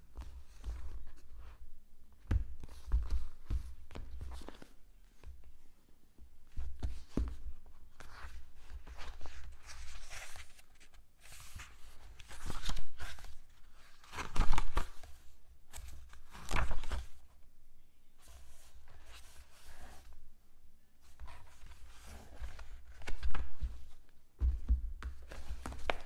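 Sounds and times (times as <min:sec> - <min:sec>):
book pages turning: 0:02.6 - 0:05.3, 0:06.5 - 0:17.2, 0:21.1 - 0:24.0, 0:25.2 - 0:26.0.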